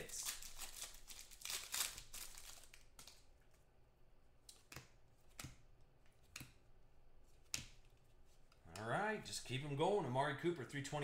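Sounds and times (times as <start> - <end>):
plastic wrapper crinkling: 0.0 - 3.3
cards clicking: 4.4 - 6.6.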